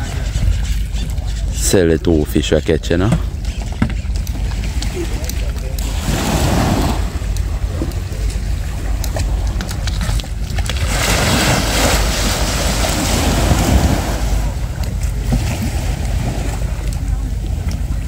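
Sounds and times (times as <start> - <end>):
wind rumble on microphone: 0.0 - 2.1, 2.9 - 18.0
waves breaking on shore: 4.1 - 18.0.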